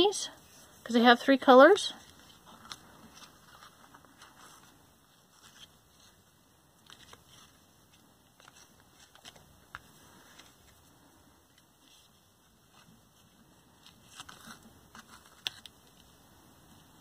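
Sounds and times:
soft clicks and rustles: 2.0s - 16.9s.

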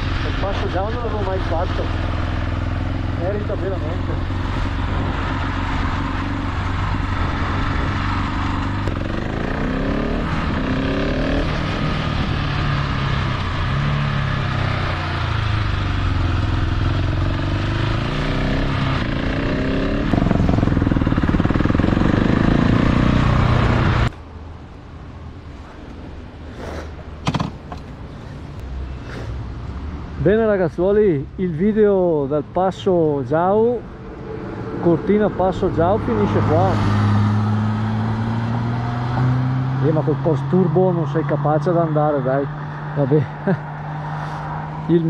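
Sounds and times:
motorcycle engine revving: 0.0s - 24.1s, 34.7s - 40.9s.

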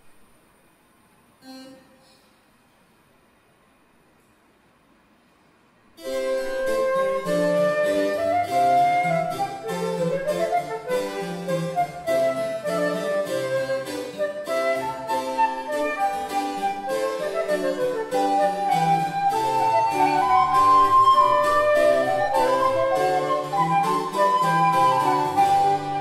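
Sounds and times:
flute melody: 6.0s - 26.0s
harpsichord: 6.0s - 26.0s.

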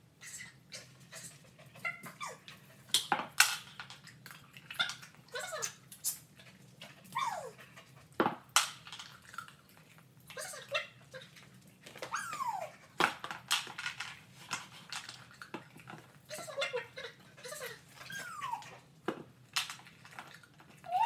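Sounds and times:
dog whining: 0.2s - 2.5s, 7.1s - 7.6s, 12.0s - 12.8s, 16.4s - 18.8s, 20.7s - 21.0s
toys dropping into plastic bowl: 3.0s - 4.0s.

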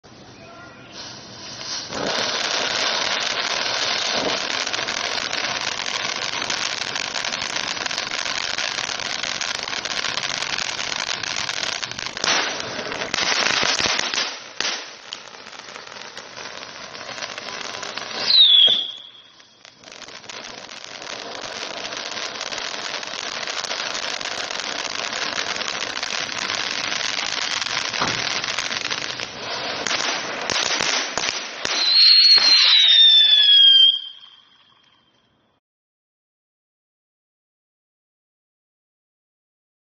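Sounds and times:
firework spraying sparks hissing: 0.2s - 34.4s
firework pops: 9.4s - 20.6s, 21.9s - 33.0s.

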